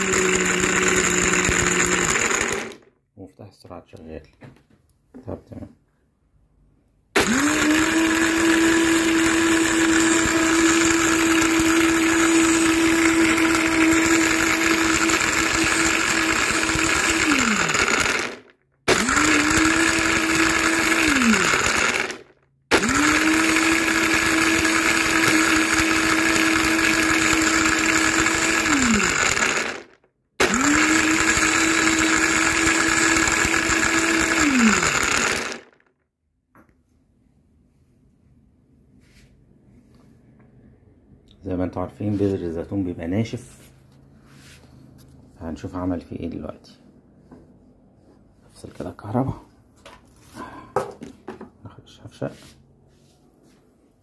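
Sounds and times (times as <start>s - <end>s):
blender whining: 0.0s - 2.9s, 7.2s - 35.9s.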